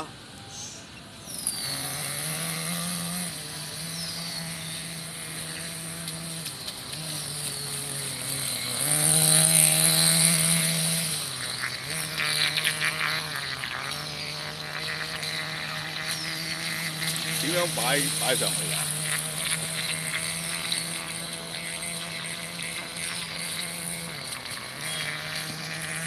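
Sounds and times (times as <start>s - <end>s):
model boat motor humming: 0.0s - 26.0s.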